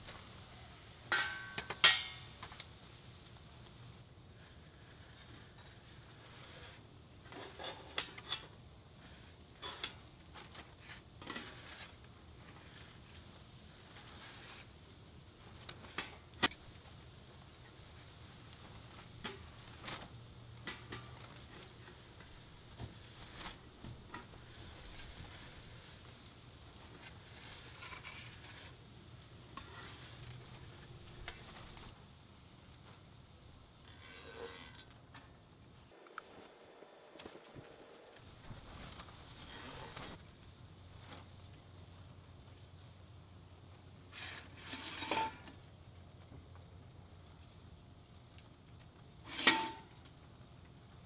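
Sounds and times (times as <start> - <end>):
marker scraping on steel pot: 11.2 - 13.2
metal scraping and rubbing: 27.0 - 28.8, 29.5 - 31.9, 44.2 - 45.5, 49.3 - 49.9.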